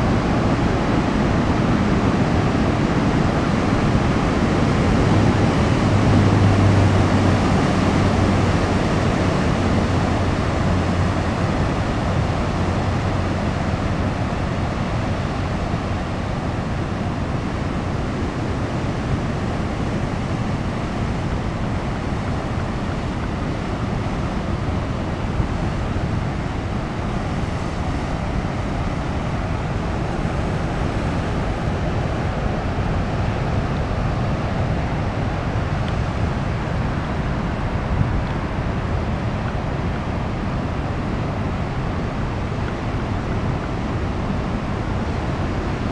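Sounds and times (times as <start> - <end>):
ocean waves breaking: 0.0 - 45.9
wind buffeting microphone: 0.0 - 45.9.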